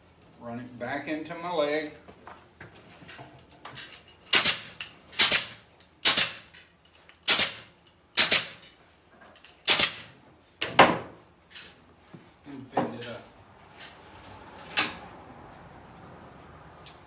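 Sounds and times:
pneumatic ring gun firing: 4.3 - 6.5, 7.2 - 8.6, 9.6 - 10.1.

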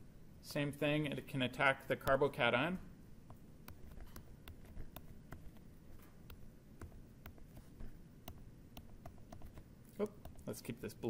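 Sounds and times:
low steady hum: 0.0 - 11.0
stylus tapping on tablet screen: 3.2 - 10.6.

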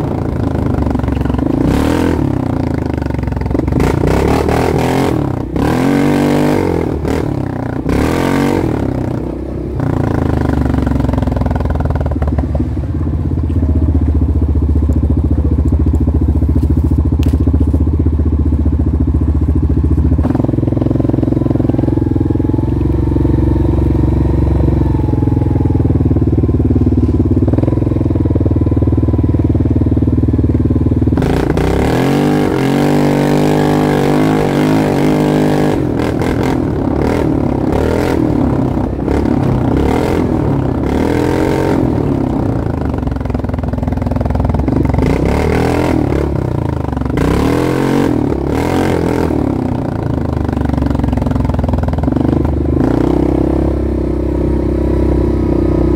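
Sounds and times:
atv engine revving: 0.0 - 55.9.

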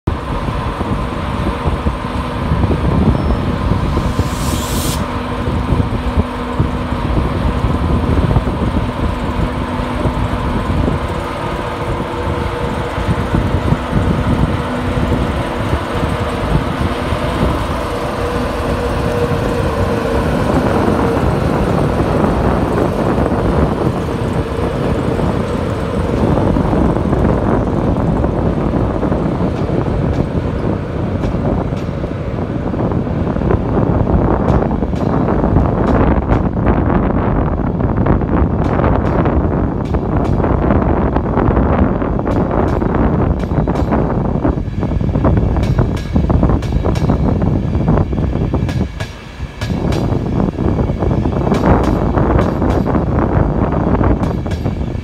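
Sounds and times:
electric locomotive hum: 0.0 - 55.0
wheels rumbling on rail: 0.0 - 55.0
short hiss: 3.9 - 5.2.

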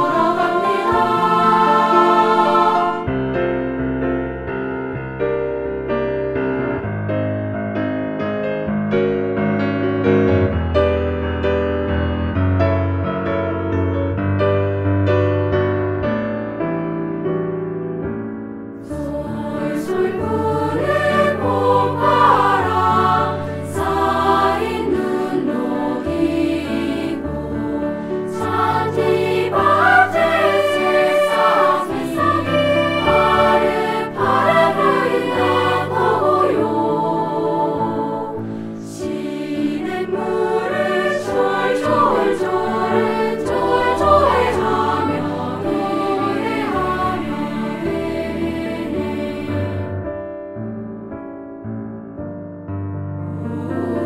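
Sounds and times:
children's choir singing: 0.0 - 3.2, 18.8 - 50.0, 53.3 - 54.0
piano accompaniment: 0.0 - 54.0.

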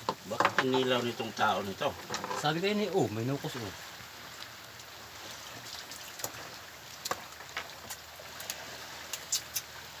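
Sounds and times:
net and floats clicking: 5.6 - 9.8.

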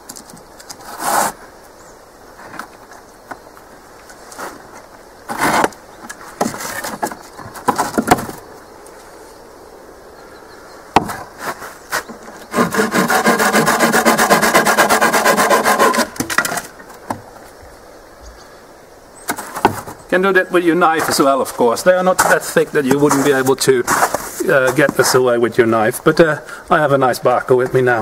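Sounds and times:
hand saw cutting wood: 11.0 - 16.7.

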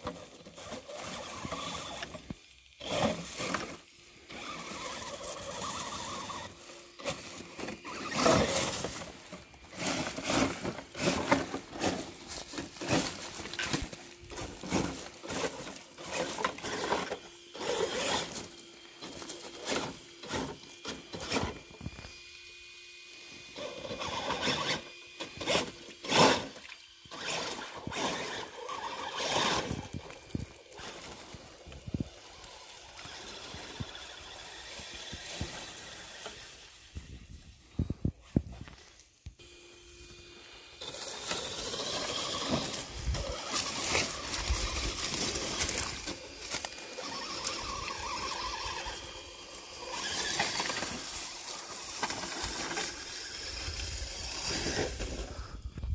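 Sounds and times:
toy truck motor whine: 0.0 - 55.9
dry leaves crunching: 0.2 - 22.1, 40.6 - 55.4.

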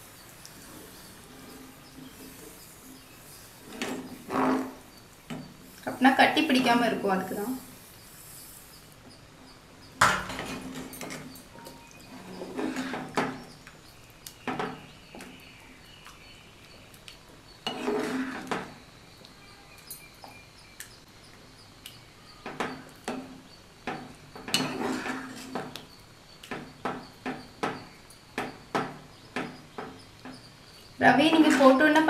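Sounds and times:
spoon scraping and knocking pan: 0.6 - 5.8, 9.9 - 13.7, 17.6 - 18.8, 22.4 - 25.9, 26.5 - 32.0.

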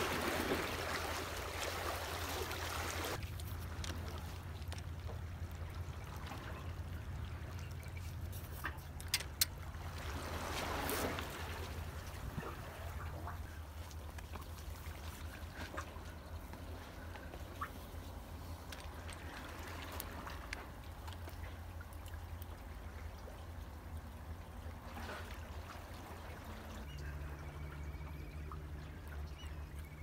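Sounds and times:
wash of water: 0.0 - 4.9
seawater lapping among concrete blocks: 0.0 - 30.0.

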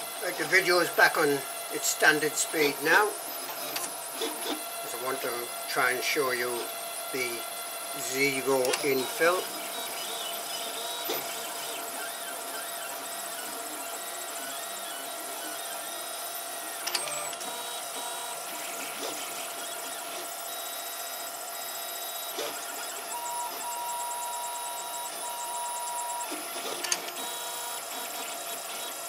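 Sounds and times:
stepper motors whining: 0.0 - 29.0.

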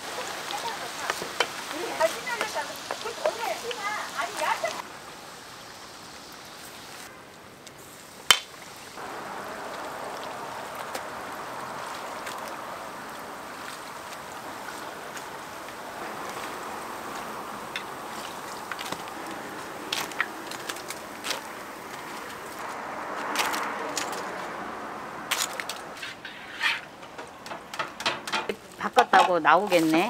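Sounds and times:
food sizzling in hot oil: 0.0 - 7.1, 7.8 - 22.6
oil crackles: 7.7 - 24.5.

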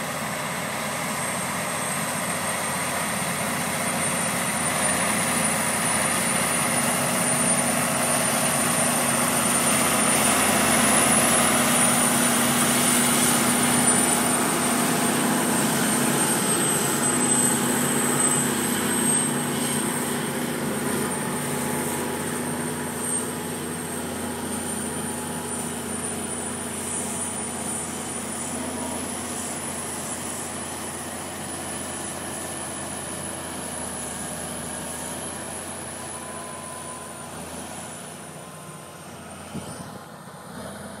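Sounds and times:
tractor engine drone: 0.0 - 41.0
thin high whine: 1.4 - 31.2.

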